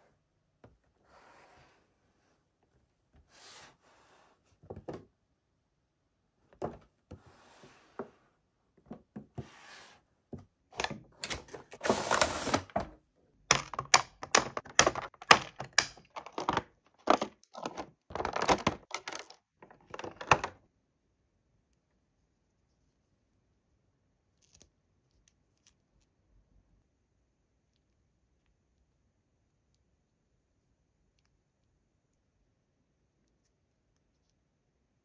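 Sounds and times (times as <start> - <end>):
plastic crackles and clicks: 13.5 - 20.6.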